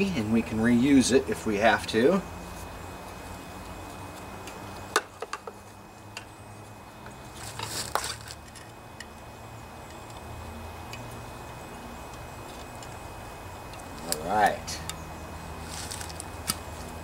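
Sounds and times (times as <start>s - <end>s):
rustling scrape: 7.3s - 8.7s, 15.6s - 16.9s.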